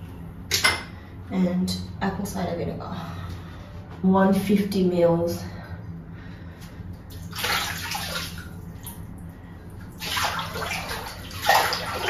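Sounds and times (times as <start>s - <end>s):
hand splashing bathwater: 7.1s - 9.0s, 9.9s - 12.0s.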